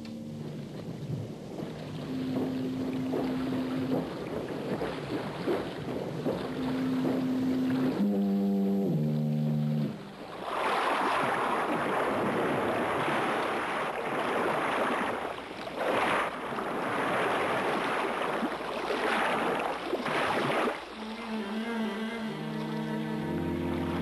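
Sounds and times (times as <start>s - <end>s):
low held musical tone: 0.0s - 4.9s, 6.3s - 10.3s, 20.9s - 24.0s
rushing splashing water: 0.3s - 8.0s, 9.4s - 24.0s.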